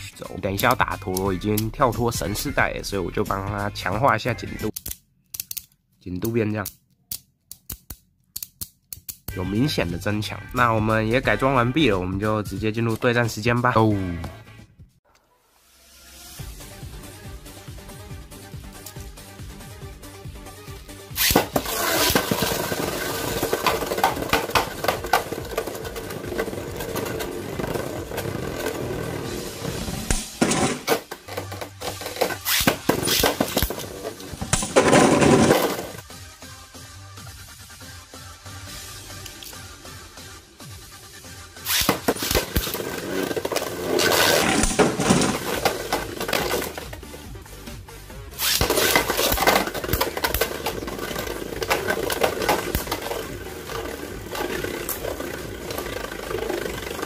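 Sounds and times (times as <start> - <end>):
background music: 0.0 - 5.0, 7.7 - 57.0
plastic tops clacking together: 21.2 - 28.9, 30.1 - 36.0, 41.7 - 47.1, 48.4 - 57.0
spinning tops whirring: 21.2 - 36.0, 41.6 - 47.2, 48.4 - 57.0.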